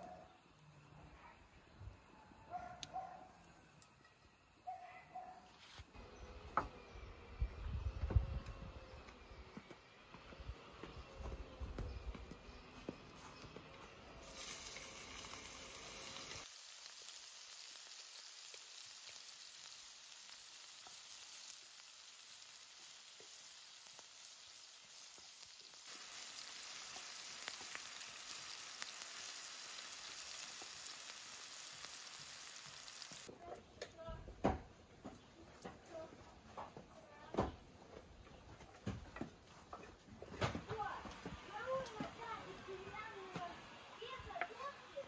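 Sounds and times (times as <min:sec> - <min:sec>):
onion frying in hot oil: 0:14.2 - 0:33.3.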